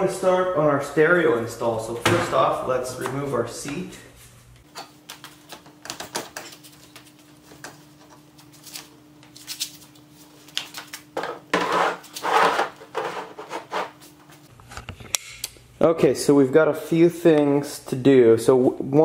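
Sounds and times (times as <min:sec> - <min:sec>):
scraping and rubbing: 0:11.5 - 0:14.5.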